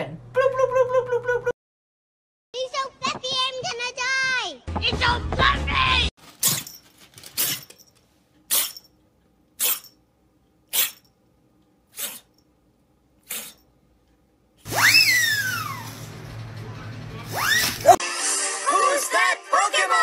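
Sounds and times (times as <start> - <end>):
kitten breathy bursts: 11.9 - 12.3, 13.2 - 13.6
swooping whistle: 14.7 - 15.9.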